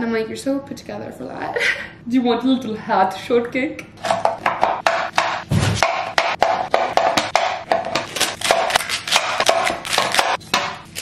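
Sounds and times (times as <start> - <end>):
knife chopping on wooden board: 4.0 - 11.0.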